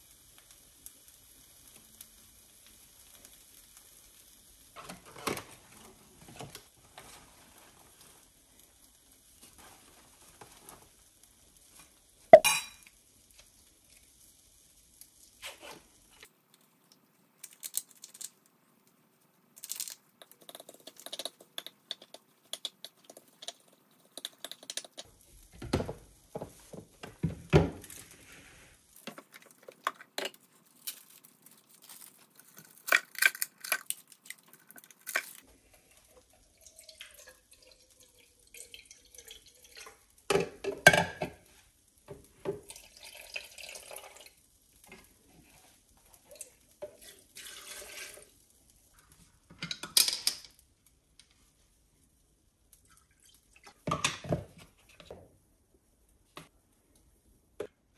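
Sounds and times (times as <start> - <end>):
water dripping: 19.6 - 25.1, 36.2 - 40.3
tap water running: 36.2 - 41.4, 42.2 - 44.4, 46.3 - 48.3
dishes and utensils clattering: 40.3 - 41.4.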